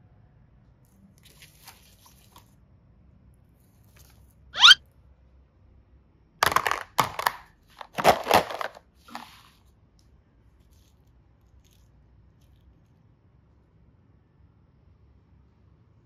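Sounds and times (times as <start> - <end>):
plastic boxes clattering and scraping: 6.4 - 9.4.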